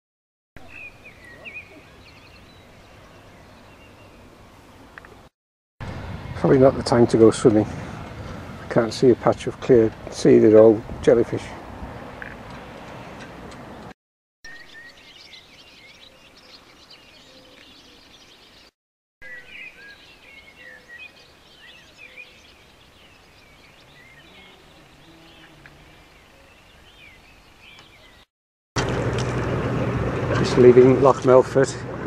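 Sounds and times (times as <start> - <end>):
songbirds chirping: 0.6 - 5.3, 14.5 - 28.3.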